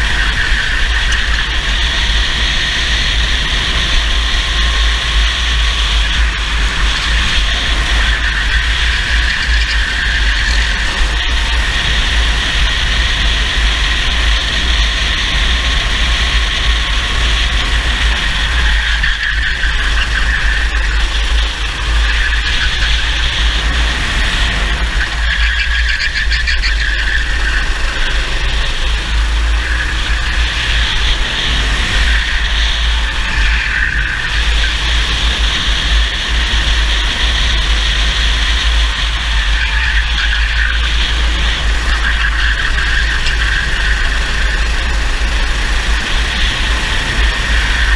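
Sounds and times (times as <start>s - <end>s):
racing kart engine: 0.0s - 47.9s
wind rumbling on microphone: 0.0s - 47.9s.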